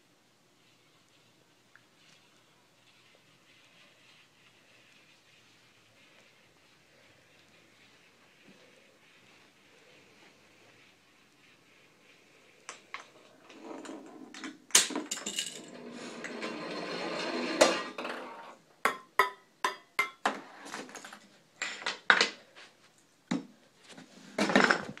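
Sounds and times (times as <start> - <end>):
ball rolling: 12.6 - 18.6
plastic balls clattering: 14.3 - 15.7.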